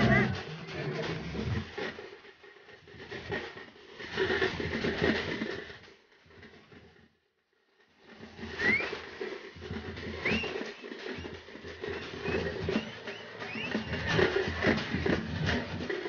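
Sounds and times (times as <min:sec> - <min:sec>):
crowd milling and shuffling: 0:00.0 - 0:02.7, 0:08.4 - 0:16.0
short rising whistle: 0:08.6 - 0:09.0, 0:10.2 - 0:14.3.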